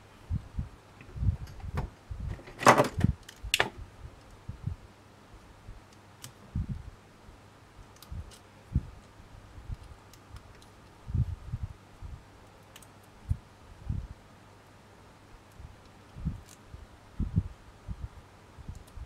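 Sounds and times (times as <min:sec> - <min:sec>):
faint ticks of wire and tool: 0:07.8 - 0:11.0, 0:12.4 - 0:13.4, 0:15.4 - 0:16.7, 0:18.6 - 0:19.0.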